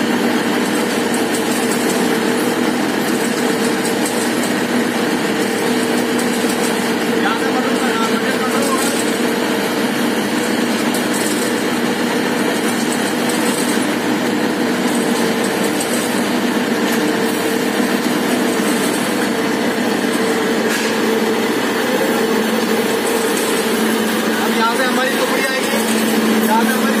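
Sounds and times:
mill machine drone: 0:00.0 - 0:27.0.

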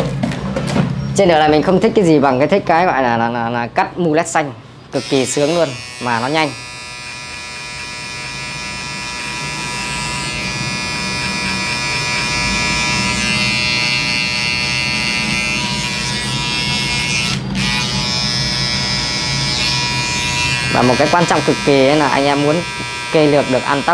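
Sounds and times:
electric hair clippers humming: 0:05.0 - 0:23.9.

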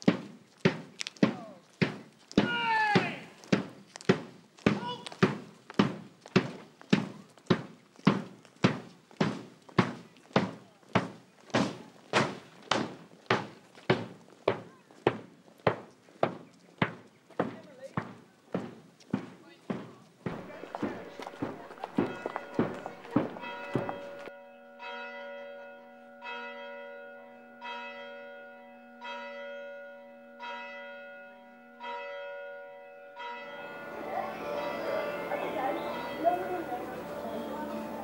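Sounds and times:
marching drum beats: 0:00.0 - 0:24.3
outdoor sound: 0:00.0 - 0:38.0
church bell ringing: 0:20.3 - 0:38.0.

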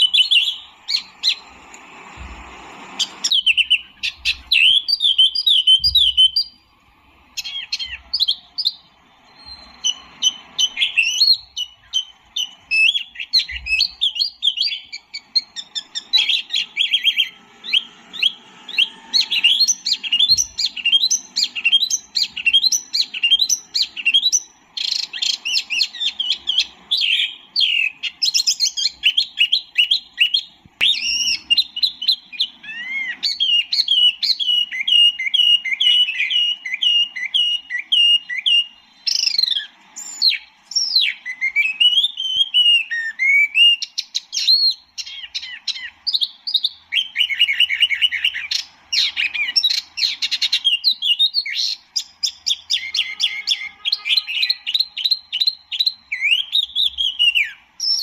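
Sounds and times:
songbird singing whistled notes: 0:00.0 - 0:02.2, 0:02.8 - 0:58.0.

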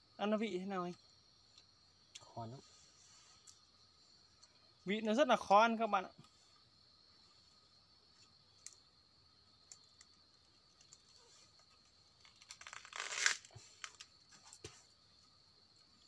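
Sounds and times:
plant material rustling and tearing: 0:10.7 - 0:14.0.

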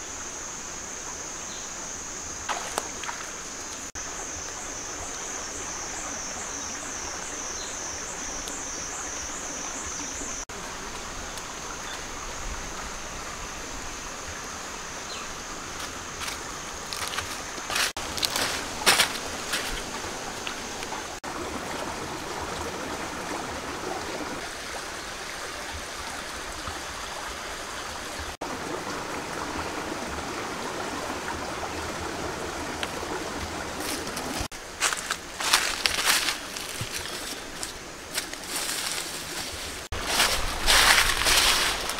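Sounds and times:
stream running over rocks: 0:00.0 - 0:41.9
dry leaves crunching underfoot: 0:15.8 - 0:20.7, 0:33.8 - 0:41.9.

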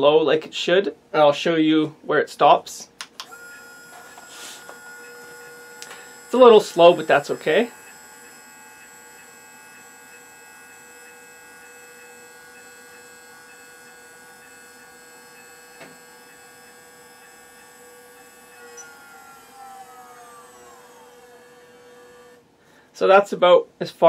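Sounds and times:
click: 0:03.0 - 0:03.4
small geared motor whining: 0:03.2 - 0:22.4.

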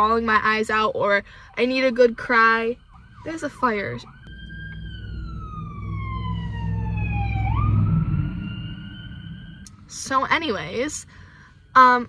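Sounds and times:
truck engine rumbling: 0:00.0 - 0:12.0
fire engine siren wailing: 0:01.3 - 0:10.2.

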